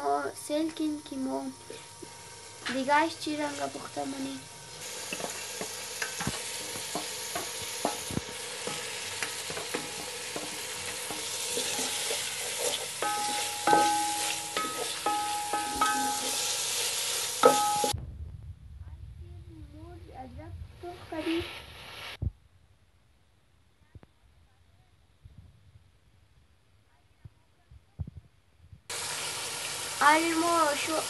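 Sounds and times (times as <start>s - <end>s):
meat and onions sizzling: 0.0s - 18.0s, 21.1s - 22.2s, 28.9s - 31.0s
wooden spoon scraping a pot: 4.8s - 17.9s
metal pot ringing: 5.1s - 16.7s, 17.4s - 18.0s.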